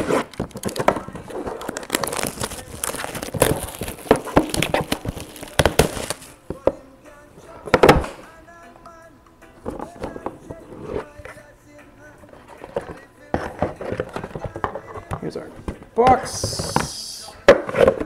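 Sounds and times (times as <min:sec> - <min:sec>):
packaging crinkling: 0:00.0 - 0:06.4.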